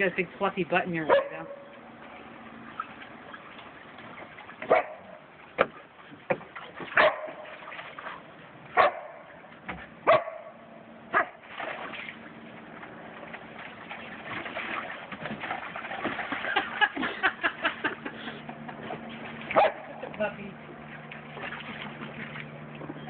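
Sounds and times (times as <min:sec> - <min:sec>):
dog barking: 0:01.1 - 0:01.6, 0:04.7 - 0:05.1, 0:07.0 - 0:07.4, 0:08.8 - 0:09.2, 0:10.1 - 0:11.4, 0:19.6 - 0:19.8.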